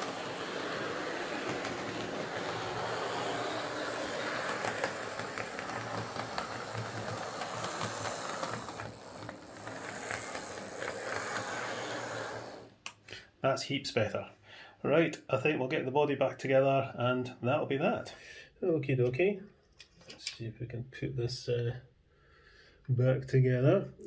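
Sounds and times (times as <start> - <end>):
wheels clicking on rails: 0.0 - 12.8
model train motor whirring: 0.0 - 12.9.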